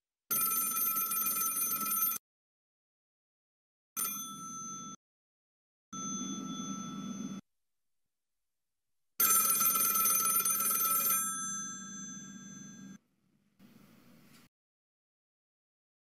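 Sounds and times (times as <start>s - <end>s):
telephone bell ringing: 0.3s - 2.2s, 4.0s - 5.0s, 6.0s - 7.4s, 9.2s - 13.0s.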